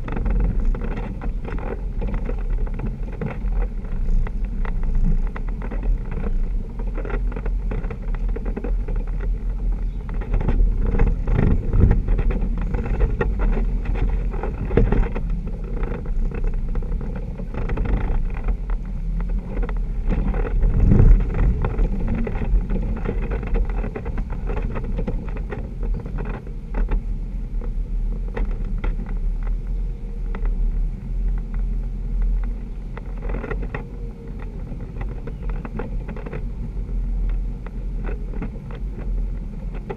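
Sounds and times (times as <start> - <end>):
body knocks and rattles: 0.0 - 30.7
off-road vehicle engine running: 0.0 - 39.9.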